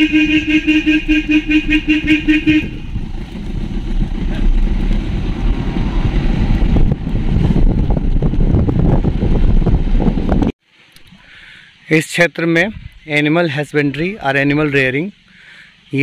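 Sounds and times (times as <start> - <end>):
vehicle horn short toots: 0.0 - 2.9
vehicle rumbling on rough road: 0.0 - 10.9.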